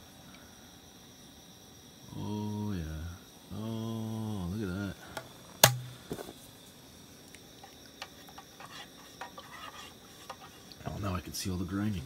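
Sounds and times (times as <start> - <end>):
bottle set down with knock: 5.6 - 6.2.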